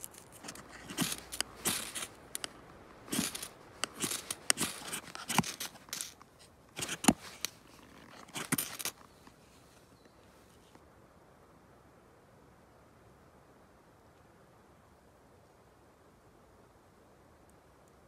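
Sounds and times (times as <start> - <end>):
knife scraping a ferro rod: 0.0 - 6.2, 6.8 - 9.1.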